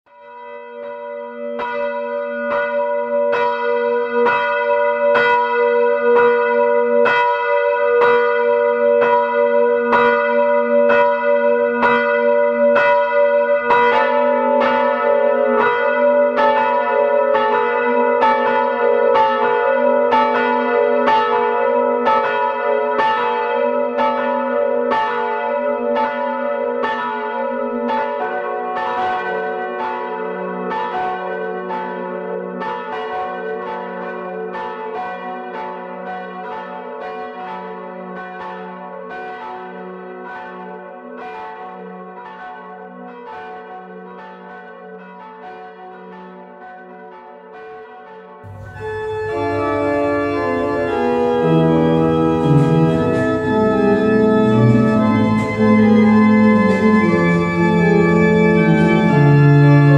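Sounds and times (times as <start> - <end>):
church bells ringing: 0.1 - 59.9
sustained bell hum: 48.5 - 59.9.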